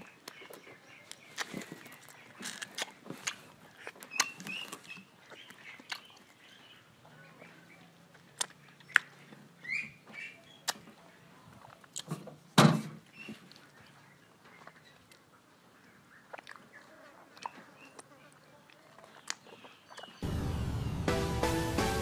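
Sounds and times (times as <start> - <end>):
mouth eating sounds: 0.0 - 6.4, 16.1 - 20.2.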